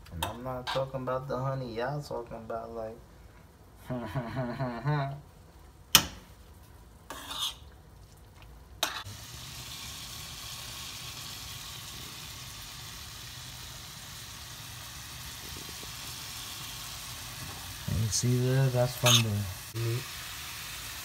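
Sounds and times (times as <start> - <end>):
food sizzling in a skillet: 8.8 - 21.0.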